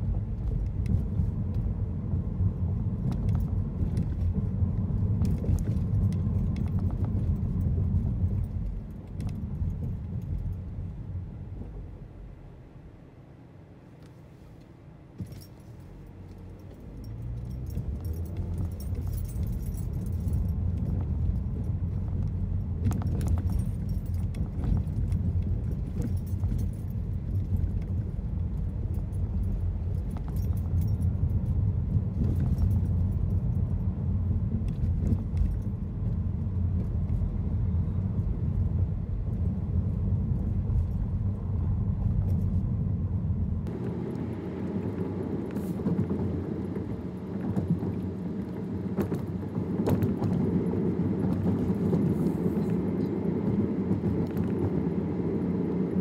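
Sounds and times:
car engine and tyre rumble: 0:00.0 - 0:56.0
small rattles and clicks: 0:15.2 - 0:33.8.

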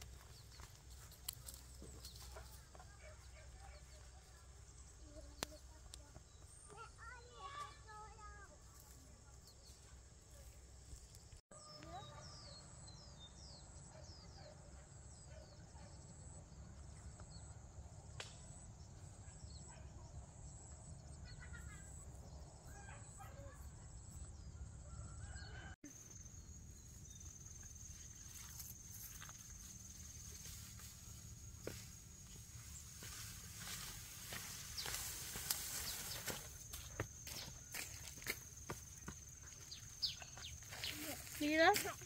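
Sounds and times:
bird chirps: 0:32.7 - 0:42.0.

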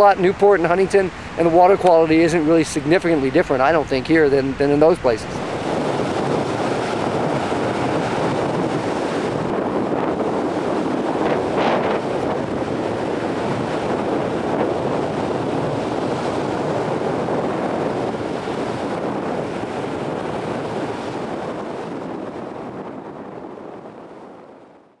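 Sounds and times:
choppy sea water washing: 0:00.0 - 0:24.6
wind rushing over microphone: 0:00.0 - 0:25.0.

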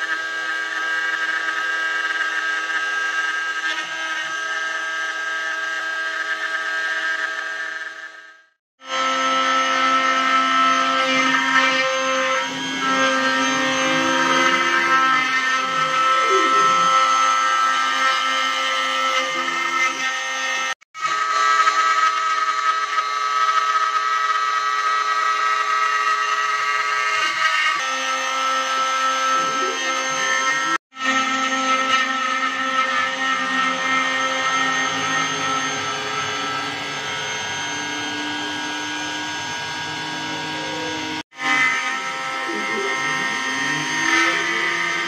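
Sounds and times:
router bit cutting wood: 0:00.0 - 0:45.0
router spindle whining: 0:00.0 - 0:45.0.

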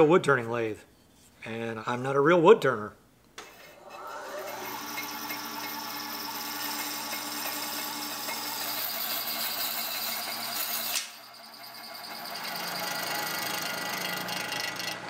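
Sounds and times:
bandsaw cutting wood: 0:03.8 - 0:11.2, 0:12.0 - 0:15.0.

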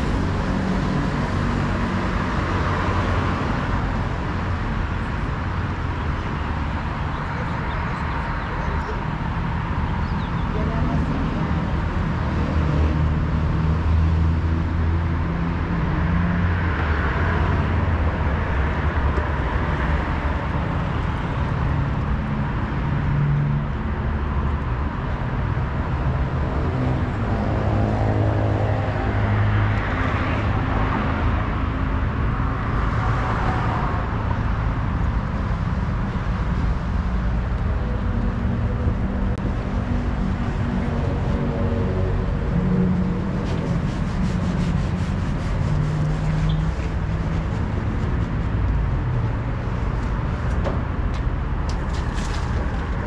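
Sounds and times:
cars passing: 0:00.0 - 0:53.0
vehicle engines rumbling: 0:00.0 - 0:53.0.

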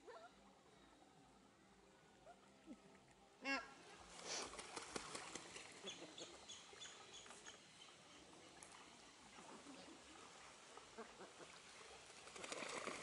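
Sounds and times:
waterfowl splashing in water: 0:04.2 - 0:07.3, 0:08.6 - 0:13.0.

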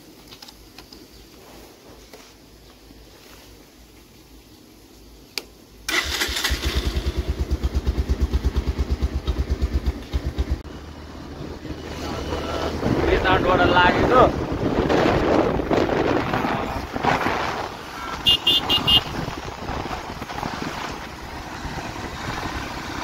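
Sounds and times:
click: 0:05.3 - 0:05.5
motorcycle engine running: 0:06.6 - 0:23.0.

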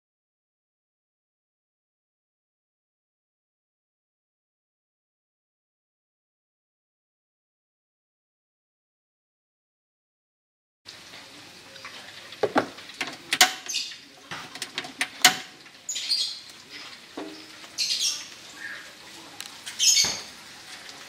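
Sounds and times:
oil hissing and crackling in a wok: 0:10.9 - 0:21.0
kitchen clicks and knocks: 0:12.4 - 0:15.7, 0:17.1 - 0:17.5.

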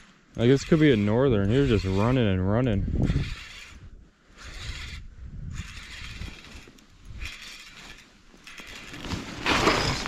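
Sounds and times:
fishing reel gears whirring: 0:03.0 - 0:03.8, 0:04.4 - 0:09.0.

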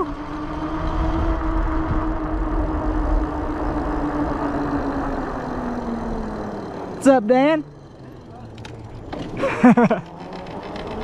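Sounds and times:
wind rumble: 0:00.0 - 0:07.0
electric bike motor whining: 0:00.0 - 0:11.0
tyres on pavement: 0:01.5 - 0:11.0.

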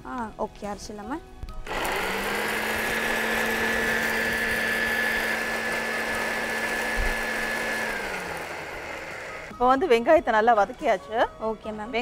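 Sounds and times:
electric grinder running: 0:01.6 - 0:09.5.

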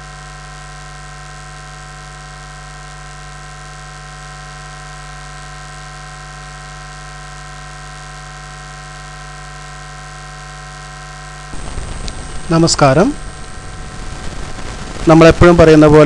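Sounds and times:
electrical hum: 0:00.0 - 0:16.0
electrical hiss: 0:00.1 - 0:16.0
high-pitched whines: 0:09.5 - 0:16.0.

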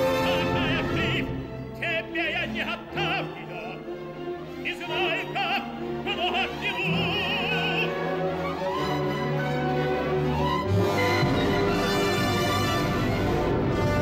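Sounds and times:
operatic tenor singing: 0:00.0 - 0:09.3
orchestra playing: 0:00.0 - 0:14.0.

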